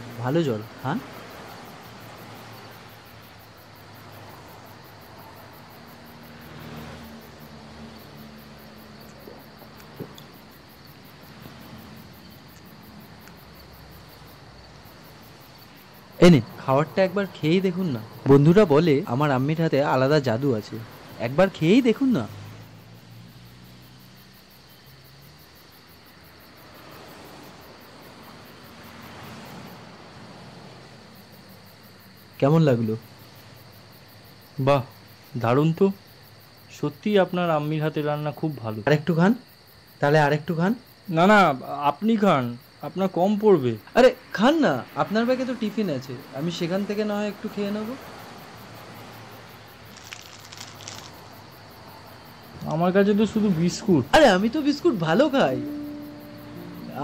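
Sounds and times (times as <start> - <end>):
faint cricket trill: 0.0 - 57.0
faint night ambience hiss: 0.0 - 57.0
small clicks: 49.9 - 51.2.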